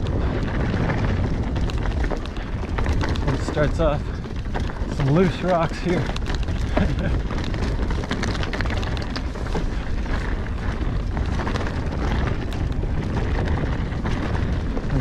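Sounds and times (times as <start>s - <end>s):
stones and bike rattling: 0.0s - 15.0s
tyres crunching over gravel: 0.0s - 15.0s
wind rumble on microphone: 0.0s - 15.0s.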